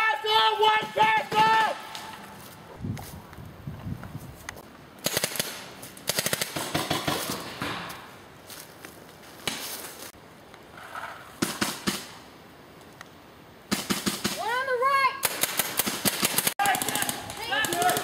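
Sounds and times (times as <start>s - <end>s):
paintball markers firing bursts: 5.0s - 7.6s, 15.2s - 18.0s.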